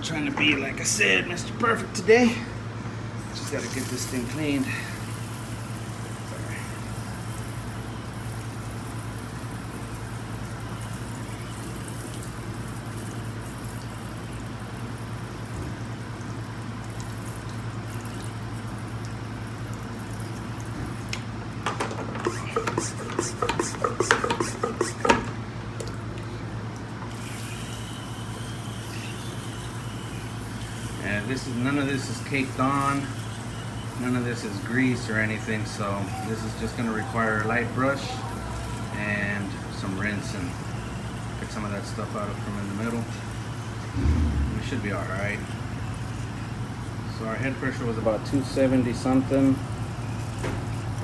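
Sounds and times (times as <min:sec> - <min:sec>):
hose spray hissing: 0:22.1 - 0:25.3
low hum: 0:43.7 - 0:46.9.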